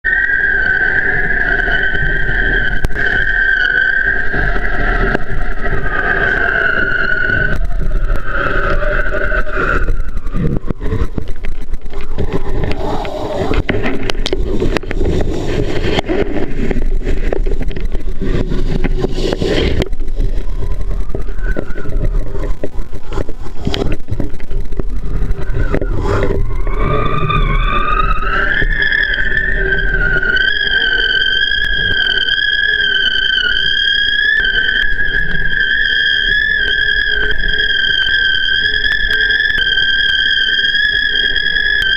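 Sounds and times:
hydrofoil high whistling: 0.0 - 41.9
wind and water rushing: 4.1 - 30.1.

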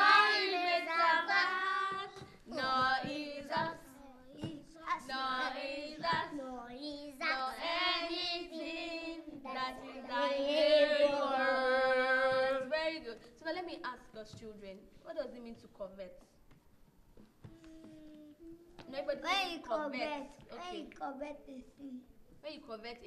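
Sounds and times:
children and woman singing: 0.0 - 6.4, 7.1 - 13.2.

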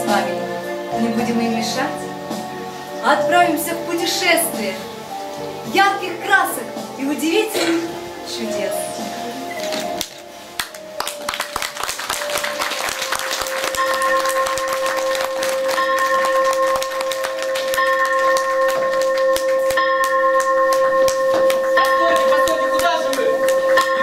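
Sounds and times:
music with long held notes: 0.0 - 24.0
audience clapping: 9.7 - 24.0.

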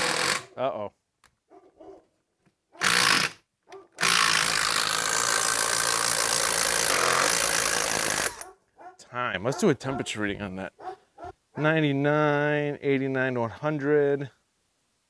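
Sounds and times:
impact driver boring into wood: 0.0 - 0.5, 2.8 - 3.4, 4.0 - 8.4.

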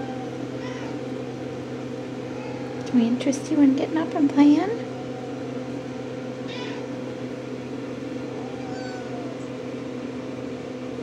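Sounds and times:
kitten mewing: 0.0 - 1.1, 2.2 - 2.9, 6.4 - 7.0, 8.2 - 9.6.

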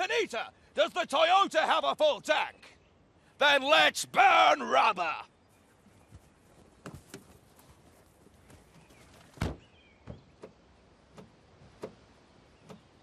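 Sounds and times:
footsteps on gravel: 5.9 - 9.4
soft knocks and thuds: 6.1 - 7.7, 8.5 - 12.0
car door shutting: 9.4 - 12.0.

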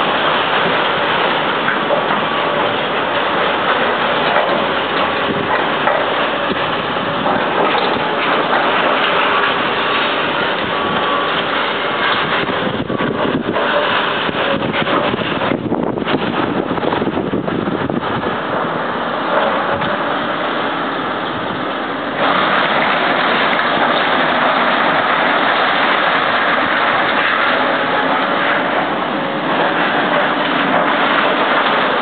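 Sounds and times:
demolition machinery working debris: 0.0 - 32.0.

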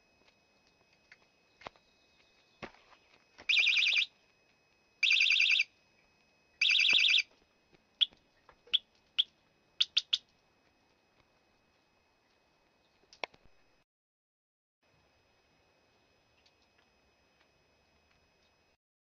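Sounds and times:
bicycle alarm warbling: 3.5 - 4.1, 5.0 - 5.7, 6.6 - 7.3, 8.0 - 10.2.

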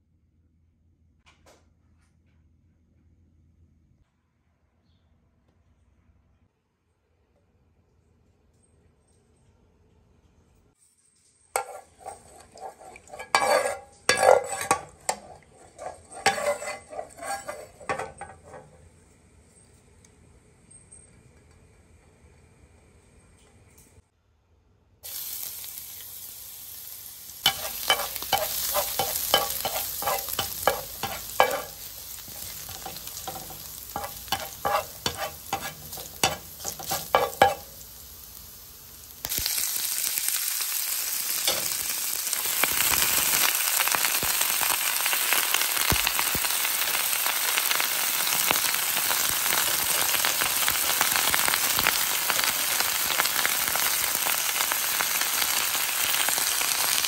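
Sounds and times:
garlic sizzling in hot oil: 11.6 - 18.8, 25.0 - 57.0
greens stir-frying: 11.6 - 18.8, 25.0 - 57.0
oil crackling and popping: 11.6 - 18.8, 25.1 - 57.0.

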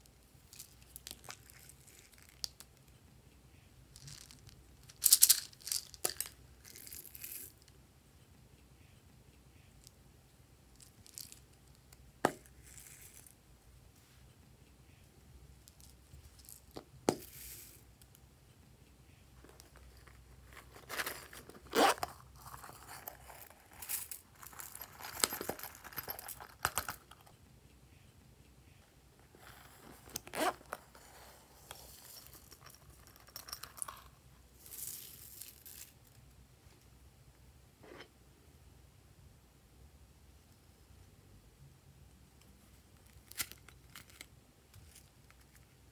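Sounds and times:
plastic sequins rustling and pattering: 4.0 - 7.7, 19.4 - 27.2, 29.3 - 36.2.

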